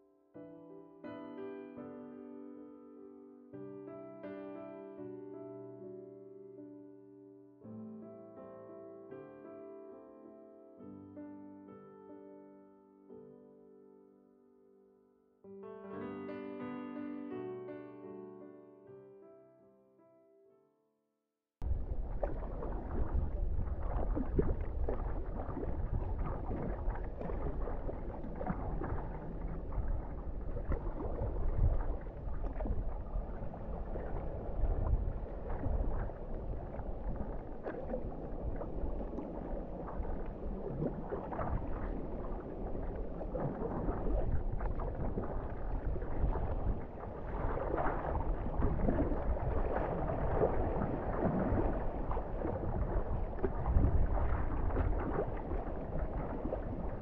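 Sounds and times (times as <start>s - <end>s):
water splashing around kayak: 21.6s - 57.0s
wind rumbling on microphone: 21.6s - 57.0s.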